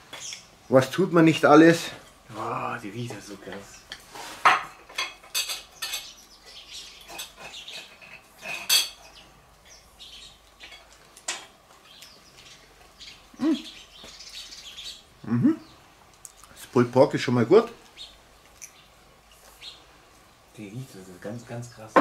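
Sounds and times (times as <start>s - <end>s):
cutlery tapping and scraping plates: 3.1s - 6.2s, 7.0s - 9.1s, 10.6s - 11.6s.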